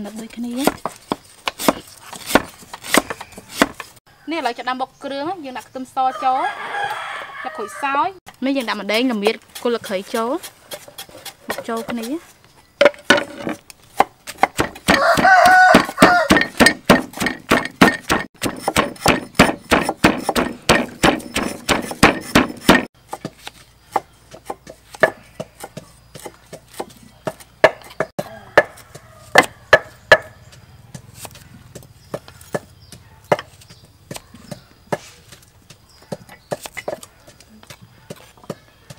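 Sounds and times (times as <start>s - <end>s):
knife chopping on wooden board: 0.5s - 3.9s, 12.8s - 35.4s
pestle pounding in mortar: 0.5s - 3.9s, 8.4s - 12.2s, 12.8s - 31.1s, 31.7s - 33.5s, 34.1s - 38.9s.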